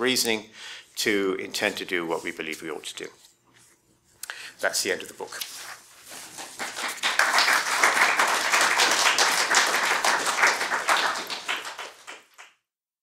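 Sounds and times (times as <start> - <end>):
audience applauding: 6.4 - 12.6.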